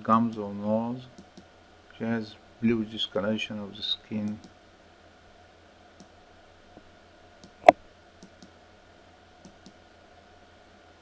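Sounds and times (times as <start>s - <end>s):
computer mouse clicking: 1.2s - 1.5s, 8.2s - 8.6s, 9.4s - 9.8s.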